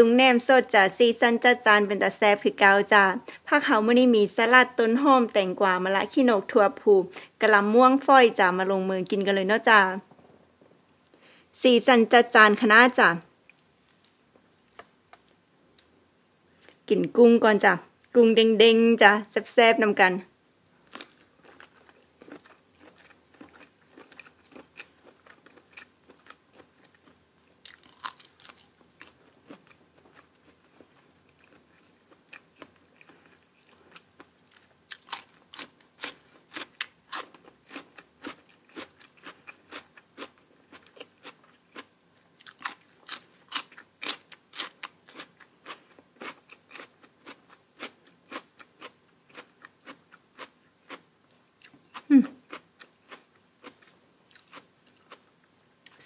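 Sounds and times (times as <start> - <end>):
person crunching food: 20.8 - 51.0, 51.6 - 55.2
wet chewing: 20.9 - 51.0.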